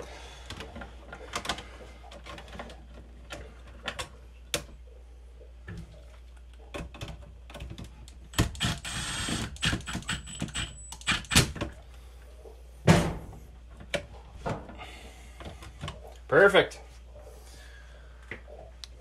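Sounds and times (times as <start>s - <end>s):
cordless driver running: 8.4s - 11.5s.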